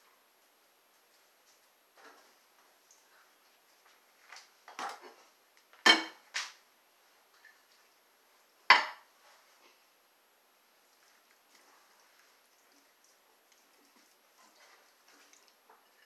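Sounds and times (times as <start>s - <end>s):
dishes clinking and knocking: 5.8s - 6.2s, 8.7s - 9.0s.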